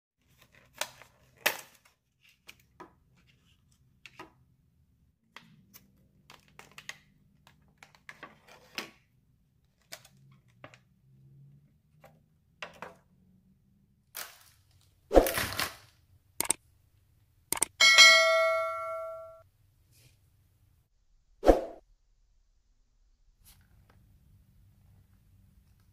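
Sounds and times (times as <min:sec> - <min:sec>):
click: 0:16.4 - 0:16.6, 0:17.5 - 0:17.7
bell chime sound effect: 0:17.8 - 0:19.4.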